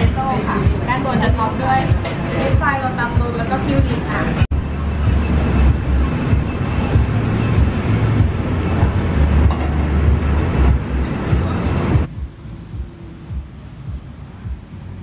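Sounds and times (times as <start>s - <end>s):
loud low rumble: 3.8s - 12.1s
noisy hiss: 3.8s - 15.0s.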